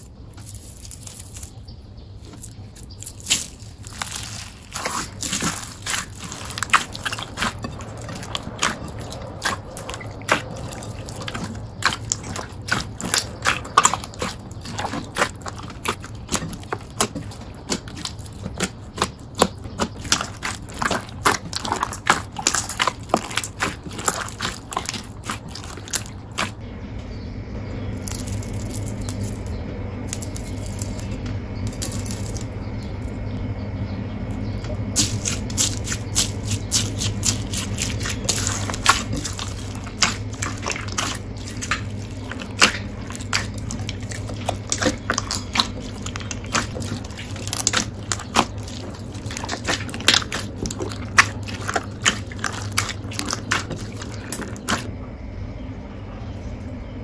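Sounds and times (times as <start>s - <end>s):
wet slime squishing with hiss: 2.2s - 26.6s, 34.9s - 54.9s.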